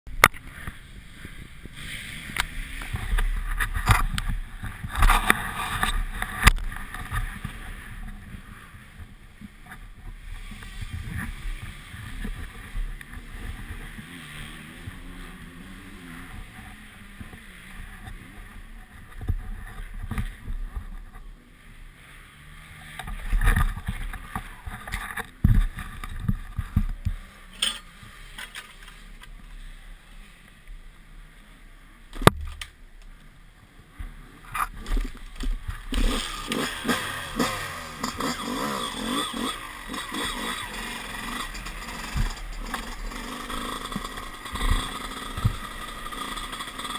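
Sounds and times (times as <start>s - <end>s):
wind on camera: 0.1s - 21.3s, 23.0s - 27.3s.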